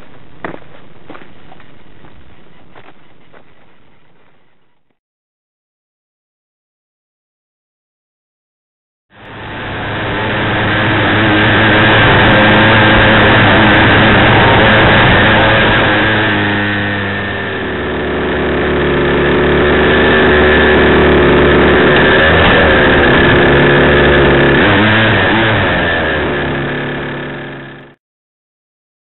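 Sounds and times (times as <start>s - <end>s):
model car engine running: 9.2s - 28.0s.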